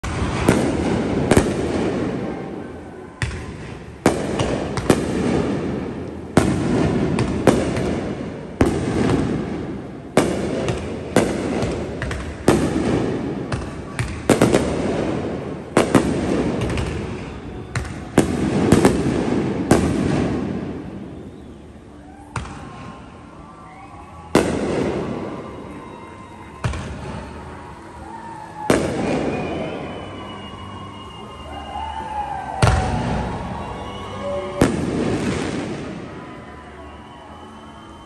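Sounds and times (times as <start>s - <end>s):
firework bangs: 0.0s - 21.4s, 24.3s - 25.9s, 28.6s - 30.2s, 32.5s - 36.2s
firework rumble and crackle: 0.0s - 21.6s, 31.7s - 36.2s.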